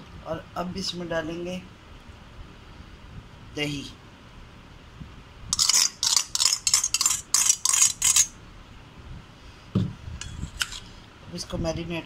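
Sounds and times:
metal spoon scraping steel bowl: 0:05.6 - 0:08.4, 0:10.2 - 0:10.9.

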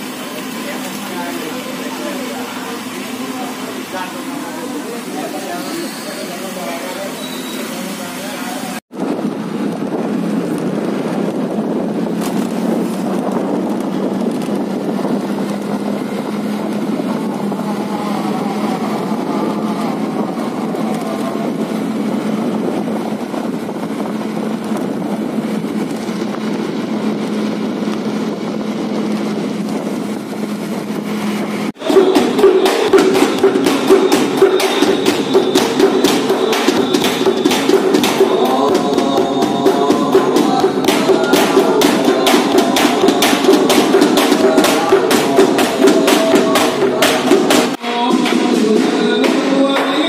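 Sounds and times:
motor scooter running: 0:00.0 - 0:50.0
wind and road noise: 0:00.0 - 0:50.0
rapid drumming on large drum: 0:31.7 - 0:50.0.

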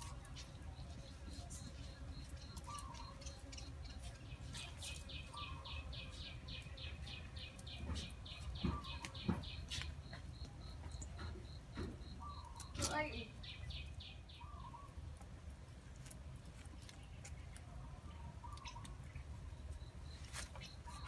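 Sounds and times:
bird chirping rapidly: 0:00.3 - 0:14.9.

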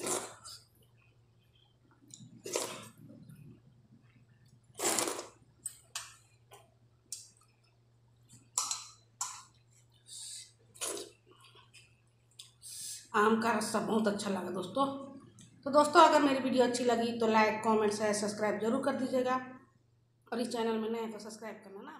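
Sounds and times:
wet eating slurps: 0:00.0 - 0:00.6, 0:02.1 - 0:03.5, 0:04.6 - 0:05.9, 0:09.4 - 0:12.9
faint low hum: 0:00.0 - 0:21.9.

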